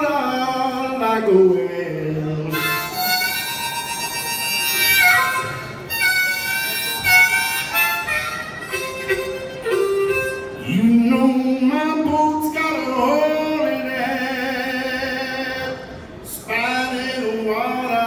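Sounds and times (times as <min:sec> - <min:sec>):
man singing: 0:00.0 - 0:03.0, 0:10.5 - 0:18.0
blues band playing: 0:02.3 - 0:13.8.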